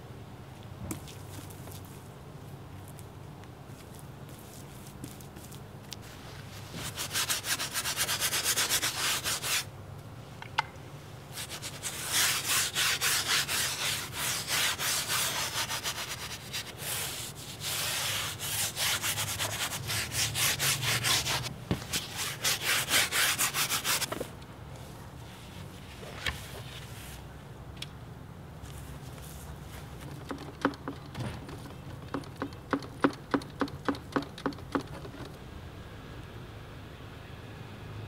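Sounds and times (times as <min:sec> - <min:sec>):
brush scrubbing paint on canvas: 0:03.9 - 0:09.7, 0:11.3 - 0:24.1.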